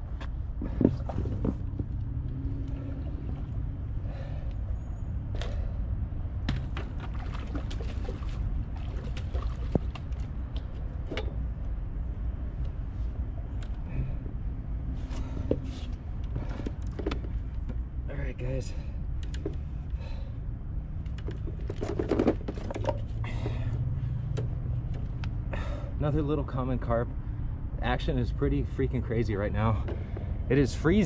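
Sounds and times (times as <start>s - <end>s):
steady low rumble: 0.0s - 31.0s
light water splashing: 6.6s - 10.7s.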